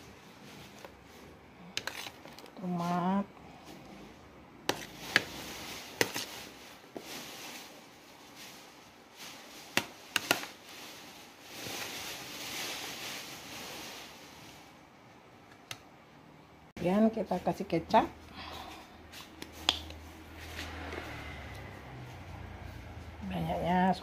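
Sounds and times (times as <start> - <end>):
soft rustling: 10.4 - 14.8.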